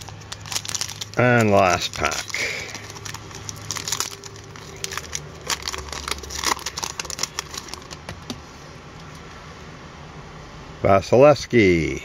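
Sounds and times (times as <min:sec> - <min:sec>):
foil wrapper tearing and crackling: 0:00.0 - 0:08.2.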